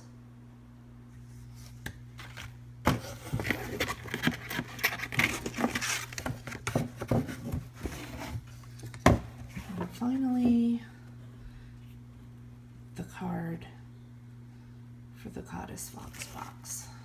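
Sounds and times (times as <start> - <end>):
paper and card rustling: 1.5 - 10.0.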